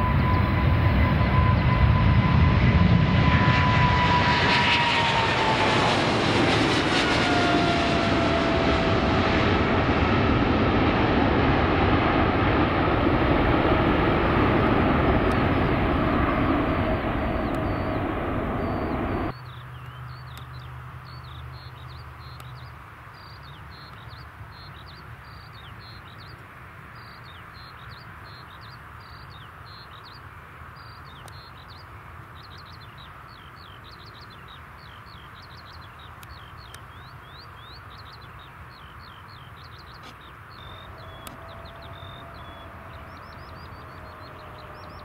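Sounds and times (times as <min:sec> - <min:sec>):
jet engines roaring: 0:00.0 - 0:19.4, 0:40.0 - 0:45.0
small birds chirping: 0:15.2 - 0:45.0.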